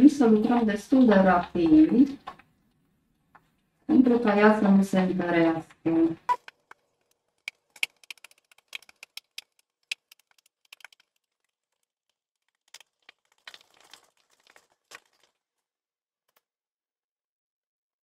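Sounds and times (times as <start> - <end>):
paste scraping and squelching: 12.4 - 15.4.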